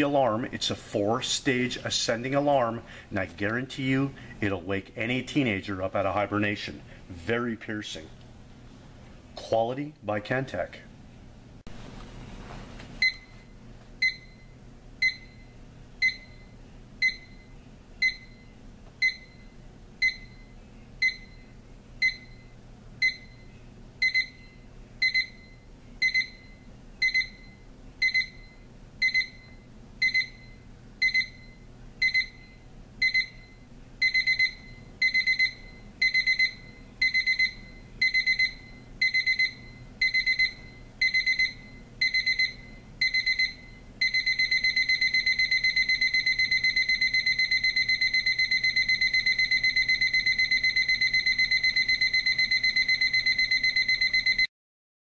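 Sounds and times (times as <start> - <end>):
alarm clock beeping: 14.0 - 14.4, 15.0 - 15.4, 16.0 - 16.4, 17.0 - 18.4, 19.0 - 19.4, 20.0 - 20.4, 21.0 - 21.4, 22.0 - 22.4, 23.0 - 23.4, 24.0 - 24.4, 25.0 - 54.5.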